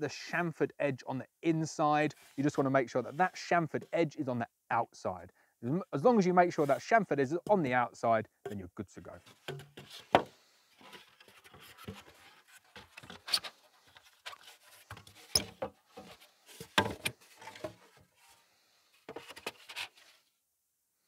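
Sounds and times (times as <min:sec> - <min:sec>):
plastic foam panels knocking: 0:09.4 - 0:10.3, 0:16.7 - 0:17.8.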